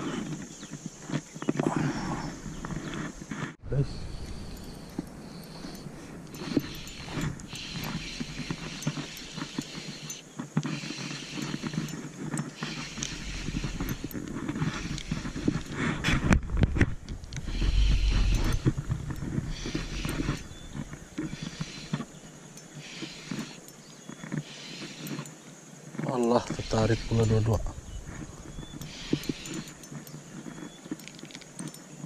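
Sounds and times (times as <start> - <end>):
handling rustle: 0.0 - 32.0
low rumbles: 3.6 - 8.4, 13.0 - 22.2
fishing reel clicking: 4.6 - 15.7, 17.4 - 23.7, 24.4 - 25.3, 26.2 - 27.6, 28.6 - 29.9.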